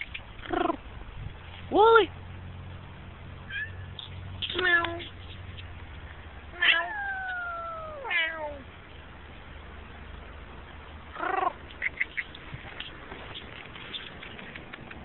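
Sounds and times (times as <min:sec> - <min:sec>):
cat meowing: 0:06.6 - 0:08.6.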